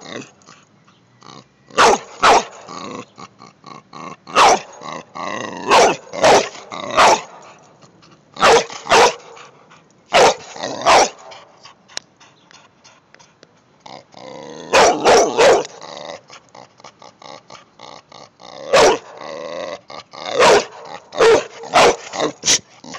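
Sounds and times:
dog barking: 1.8 - 2.6, 4.4 - 4.7, 5.7 - 7.4, 8.4 - 9.4, 10.2 - 11.2, 14.7 - 15.8, 18.7 - 19.1, 20.4 - 22.4.

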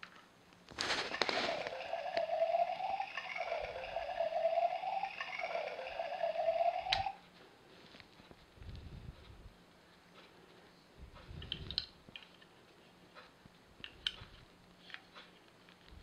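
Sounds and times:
toy train buzzy electronic tone: 1.0 - 7.2.

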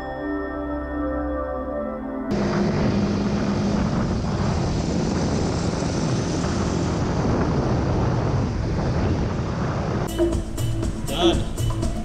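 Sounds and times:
wind rushing over microphone: 2.3 - 10.1.

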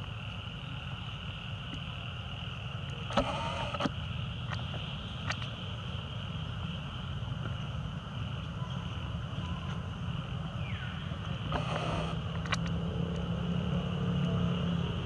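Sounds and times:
high-pitched hum: 0.0 - 15.0
steady low rumble: 0.0 - 15.0
sharp clicks: 11.5 - 13.3.

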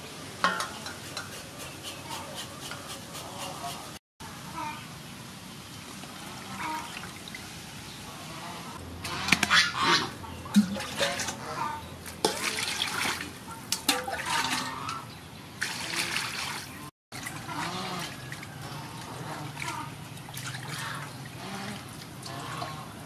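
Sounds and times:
birds calling: 0.7 - 4.0, 6.4 - 12.2
water splashing in a metal basin: 5.8 - 7.7, 9.0 - 23.0
water poured from a bowl: 12.2 - 14.8, 15.6 - 22.8.

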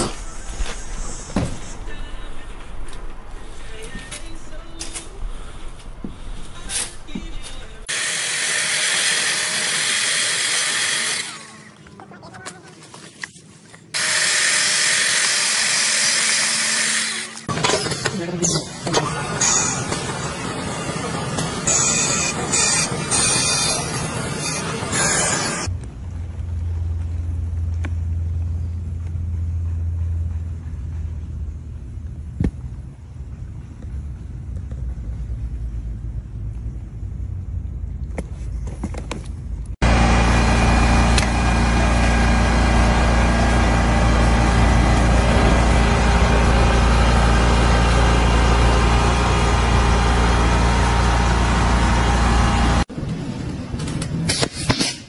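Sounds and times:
machine engine running: 14.0 - 31.8, 39.8 - 52.9.

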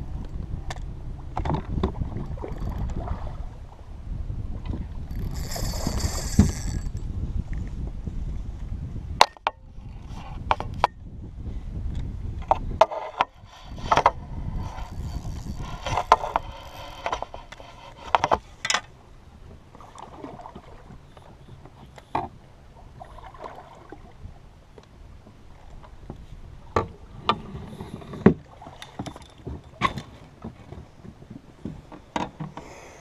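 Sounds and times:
wind buffeting microphone: 0.0 - 18.5
fishing gear clicking and knocking: 5.1 - 7.1, 13.2 - 18.9, 27.3 - 30.8.

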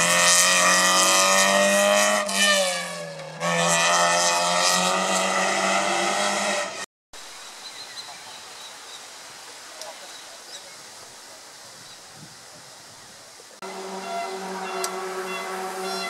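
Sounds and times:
rally car engine revving: 0.0 - 6.9, 13.6 - 16.0
faint outdoor background: 0.0 - 16.0.

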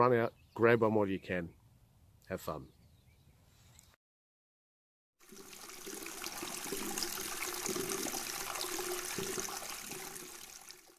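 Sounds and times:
rushing splashing water: 5.2 - 10.9.

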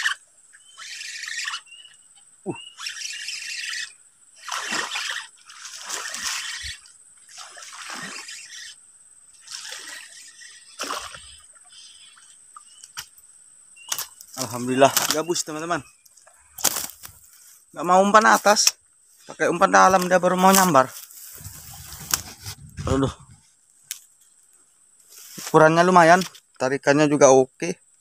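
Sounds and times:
fish splashing at water surface: 4.4 - 8.6.

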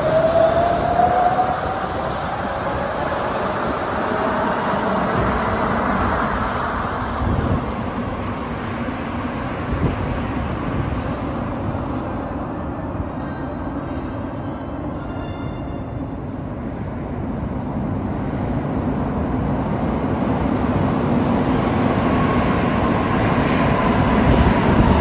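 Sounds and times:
rumble of passing train cars: 0.0 - 25.0.

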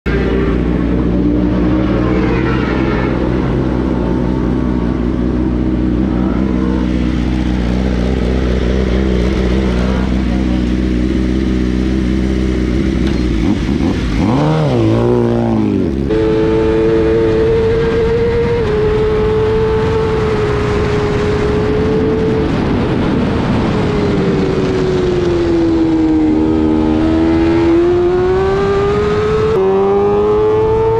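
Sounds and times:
motorcycle engine revving: 0.1 - 30.9.

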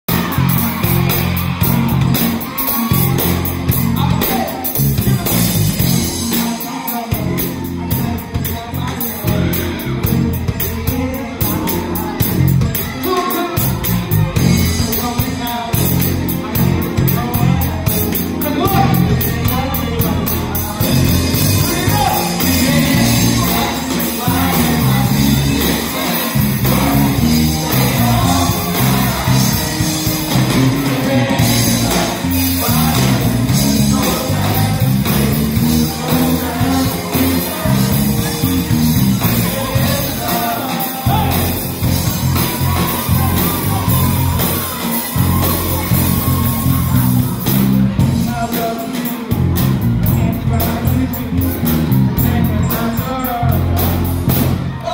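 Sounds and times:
live band playing: 0.0 - 54.9
people shouting: 0.1 - 4.6, 21.5 - 47.4
singers on microphones: 0.1 - 54.9.

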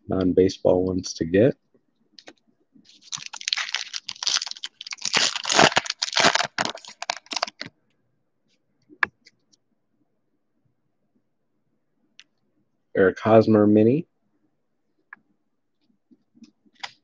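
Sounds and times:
foil wrapper crinkling and tearing: 2.9 - 7.7.

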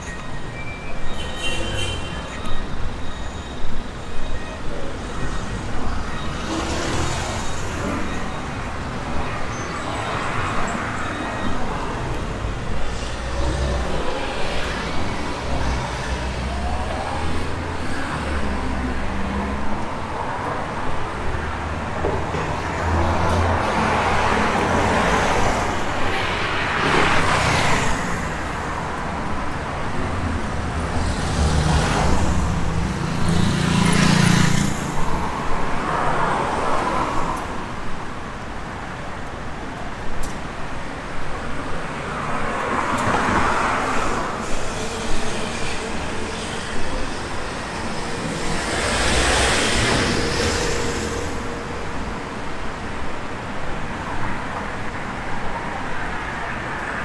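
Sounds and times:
cars driving past: 41.9 - 53.0.

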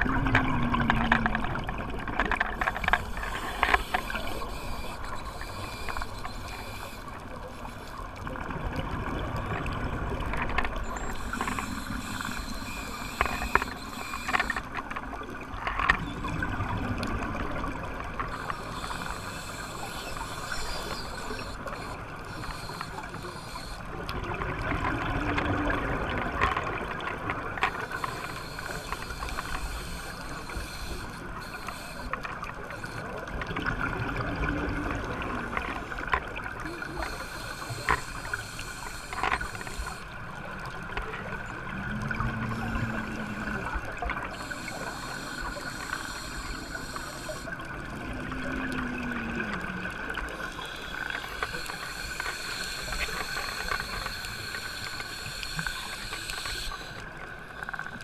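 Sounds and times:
underwater bubbles gurgling: 0.0 - 58.0.

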